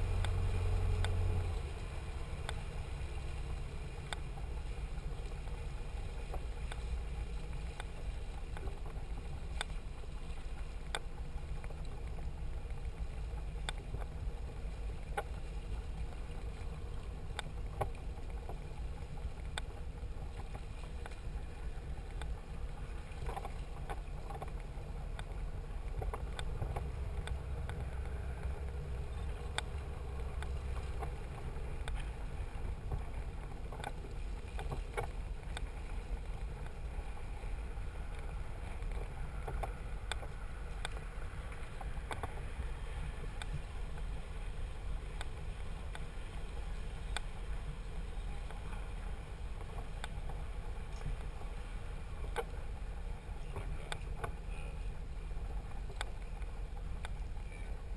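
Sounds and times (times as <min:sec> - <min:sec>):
boat engines rumbling: 0:00.0 - 0:57.9.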